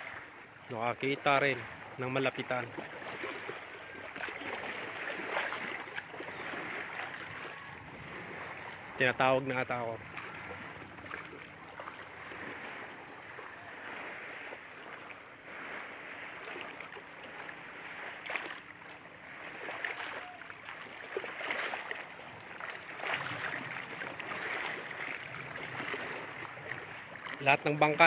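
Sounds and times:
waves washing against shore: 0:00.0 - 0:28.0.

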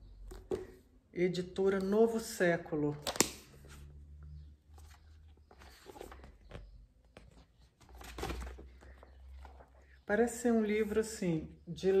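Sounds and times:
paper rustling: 0:04.7 - 0:09.9.

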